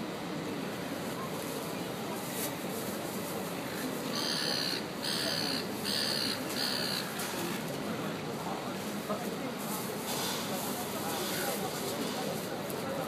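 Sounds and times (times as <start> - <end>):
steady background noise: 0.0 - 13.0
crow cawing: 4.1 - 7.1.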